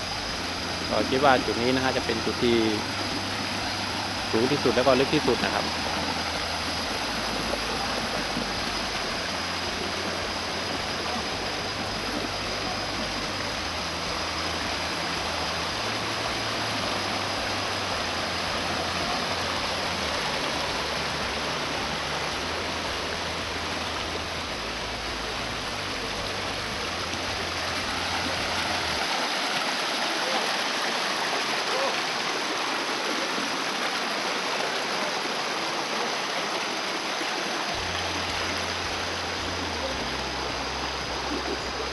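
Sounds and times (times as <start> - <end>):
low rumble: 0.0 - 29.0, 37.8 - 41.9
stream rushing over boulders: 0.0 - 41.9.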